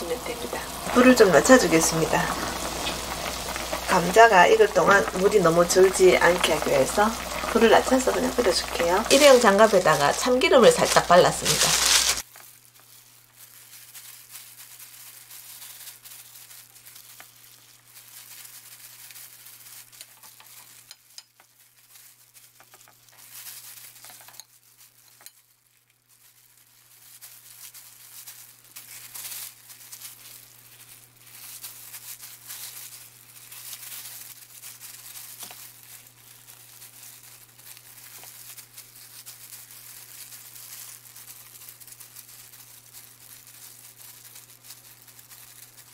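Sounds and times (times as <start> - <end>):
steady low hum: 0.0 - 12.2
plastic gloves crinkling: 0.0 - 45.9.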